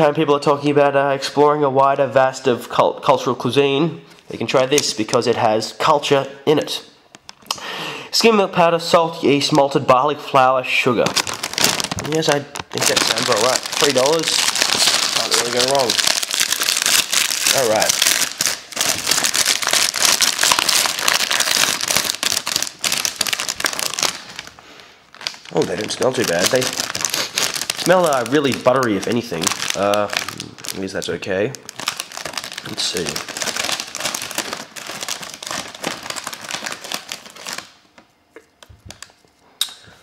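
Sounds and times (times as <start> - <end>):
foil snack packet crinkling: 10.9 - 38.0.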